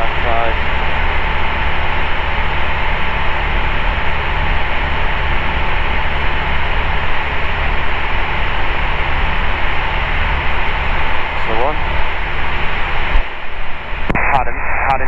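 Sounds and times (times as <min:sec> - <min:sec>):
engine and propeller drone: 0:00.0 - 0:15.0.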